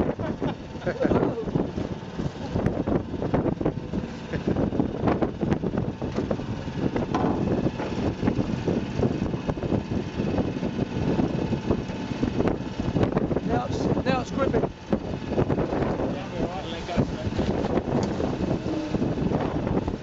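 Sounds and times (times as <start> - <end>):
boat engine running: 0.0 - 20.0
wind buffeting microphone: 0.0 - 20.0.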